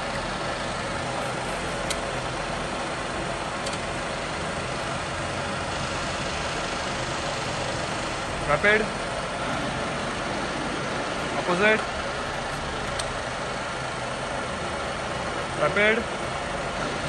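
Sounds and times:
milling machine running: 0:00.0 - 0:17.0.

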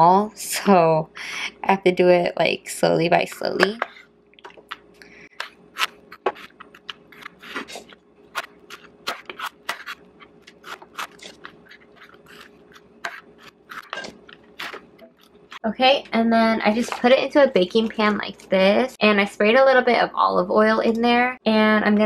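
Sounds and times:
knife chopping on cutting board: 0:05.4 - 0:15.2.

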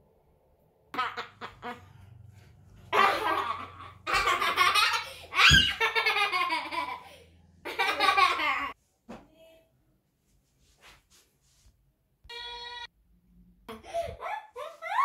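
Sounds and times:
young child laughing: 0:02.9 - 0:07.1, 0:13.7 - 0:15.0.

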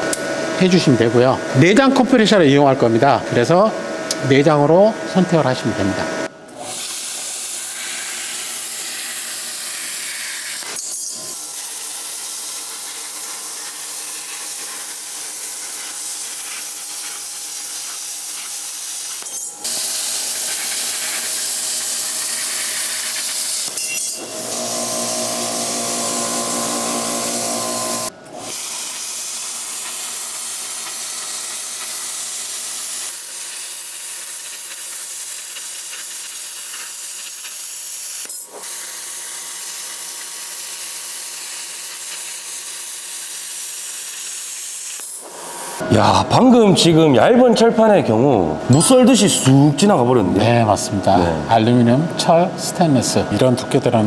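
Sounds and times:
plasma cutter arc hissing: 0:06.6 - 0:45.8.

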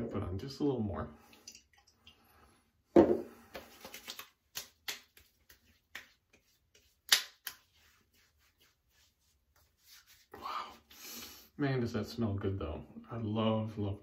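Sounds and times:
hands slapping face: 0:03.5 - 0:07.9.

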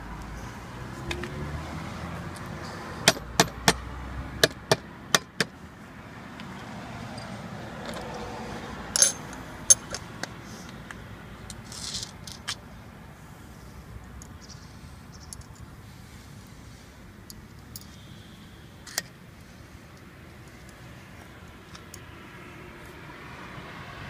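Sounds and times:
small metal parts clicking: 0:09.0 - 0:10.3, 0:11.5 - 0:12.6, 0:14.2 - 0:15.7, 0:17.3 - 0:18.0.

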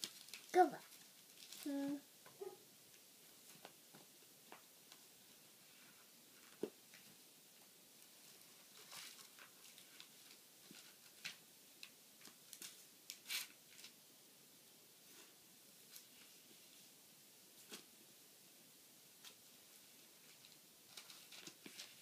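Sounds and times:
thin pages rustling and flicking: 0:00.0 - 0:01.7, 0:20.2 - 0:22.0.

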